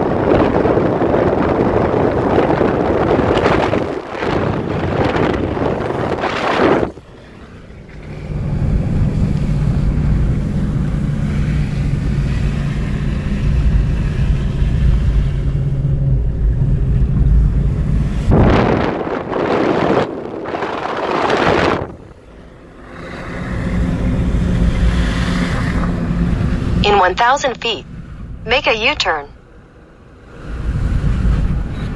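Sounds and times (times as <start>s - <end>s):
wind buffeting microphone: 0.0s - 22.4s
car engine and road drone: 0.0s - 31.9s.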